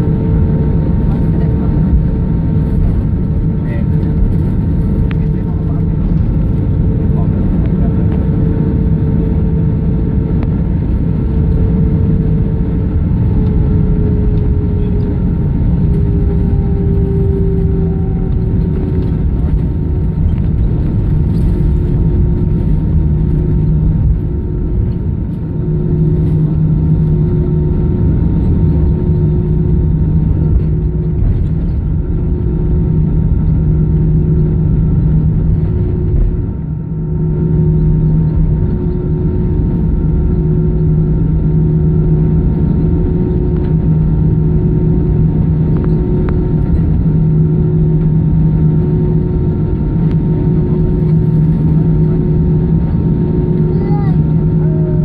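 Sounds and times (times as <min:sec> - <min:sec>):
aircraft engine rumble and hum: 0:00.0 - 0:55.0.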